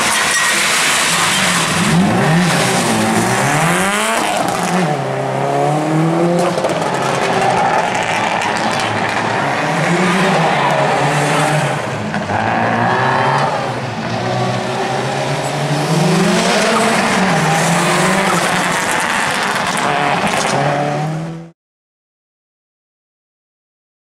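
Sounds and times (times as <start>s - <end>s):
rally car engine at full throttle: 0.0s - 21.5s.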